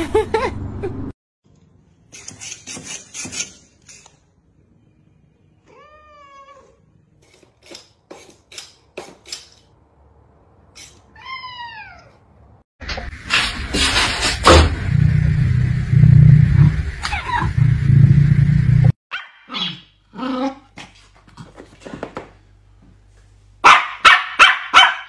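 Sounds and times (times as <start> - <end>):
cat meowing: 5.6 - 6.8, 11.1 - 12.2.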